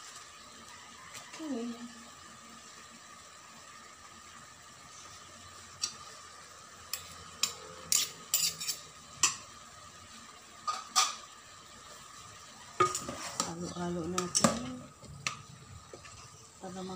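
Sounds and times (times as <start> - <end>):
metal spoon clinking on metal pot: 7.0 - 9.4.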